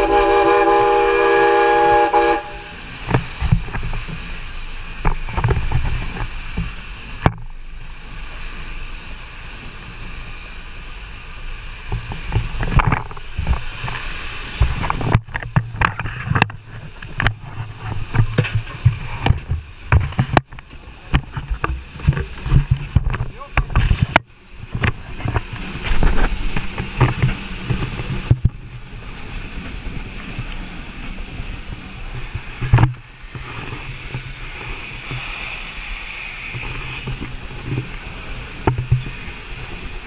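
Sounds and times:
steam hissing: 0.0s - 15.2s, 23.3s - 40.0s
low locomotive rumble: 0.0s - 40.0s.

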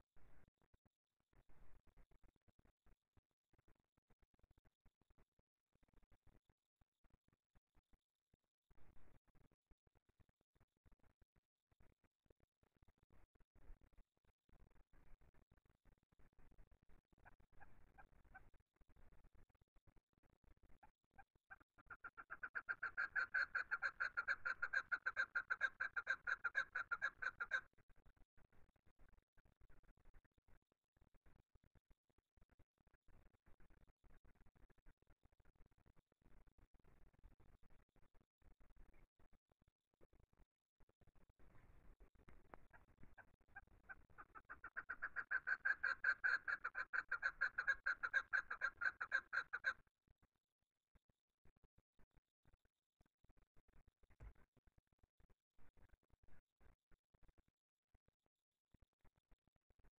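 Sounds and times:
partridge clucking call: 21.8s - 27.7s, 42.7s - 49.8s.

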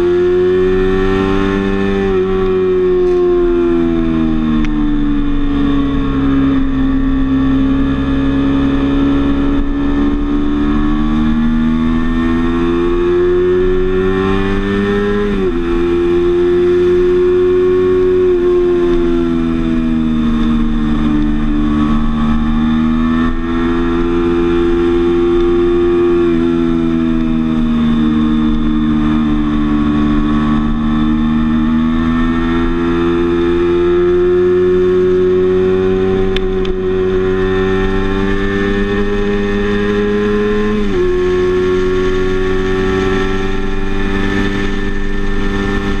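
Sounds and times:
motorcycle engine running: 0.0s - 46.0s.

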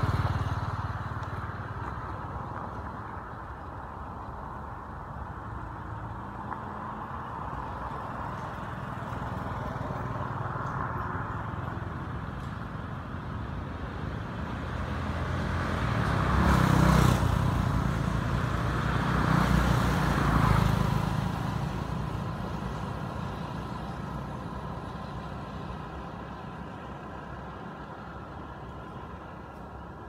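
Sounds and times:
vehicles passing on road: 0.0s - 30.0s.

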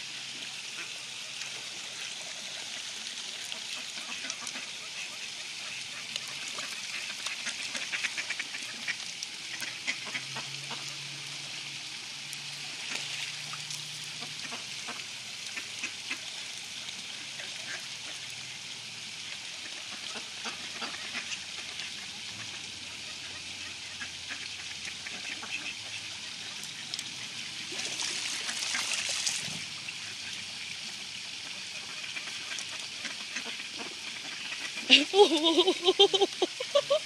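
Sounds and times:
trickle of running water: 0.0s - 37.0s
ducks quacking: 6.9s - 10.9s.

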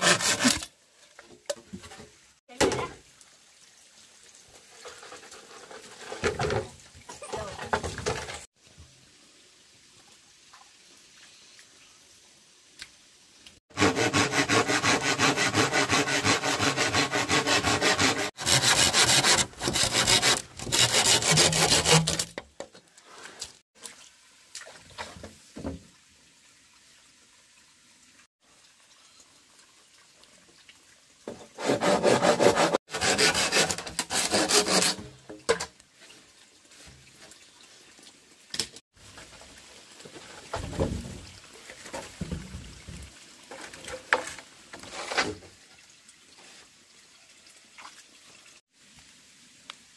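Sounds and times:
hand saw cutting bamboo: 0.0s - 0.7s, 13.7s - 22.4s, 31.6s - 35.2s.

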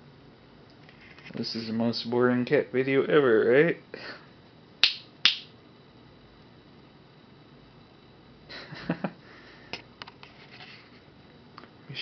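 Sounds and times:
finger snap: 4.8s - 5.6s.

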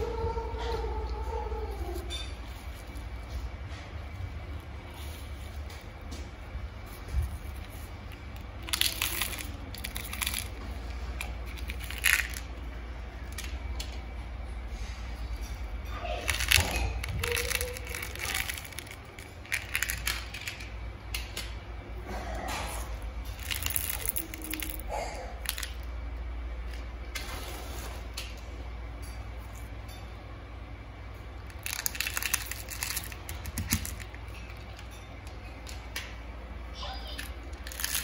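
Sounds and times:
pebbles clattering: 8.5s - 12.6s, 16.1s - 20.7s, 23.3s - 25.9s, 31.4s - 35.0s, 37.1s - 38.0s.

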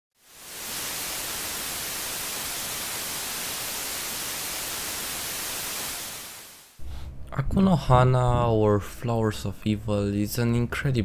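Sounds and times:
static hiss: 0.2s - 6.8s.

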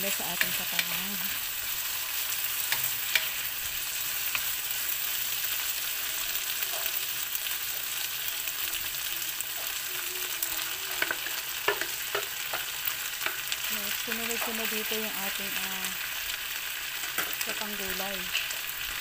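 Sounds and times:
food sizzling in a wok: 0.0s - 19.0s
wooden spatula clicking and scraping: 10.9s - 13.5s.

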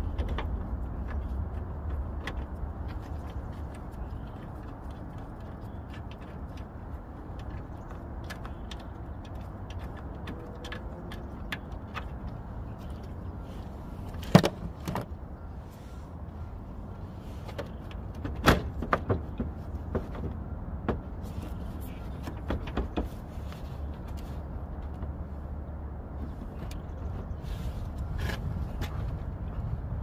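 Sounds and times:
steady low rumble: 0.0s - 18.2s, 19.5s - 30.0s
hard plastic knocks and clicks: 17.5s - 21.1s, 22.1s - 23.2s.

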